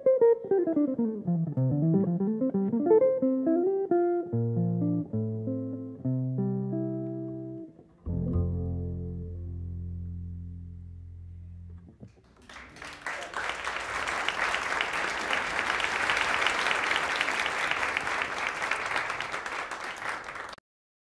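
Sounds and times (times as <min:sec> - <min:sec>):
double bass and guitar notes: 0:00.0 - 0:12.1
audience applause: 0:12.3 - 0:20.6.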